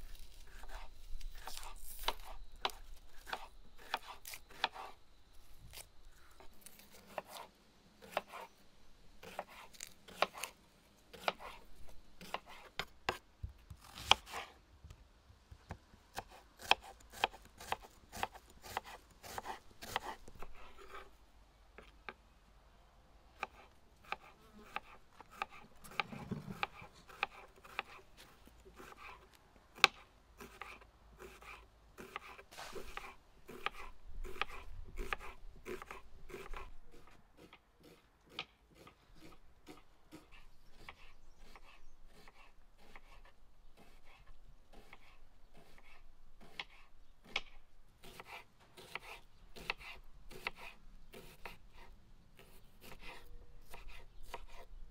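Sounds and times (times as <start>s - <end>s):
knife slicing on wooden board: 13.8s - 14.6s, 23.4s - 29.2s, 29.8s - 40.2s.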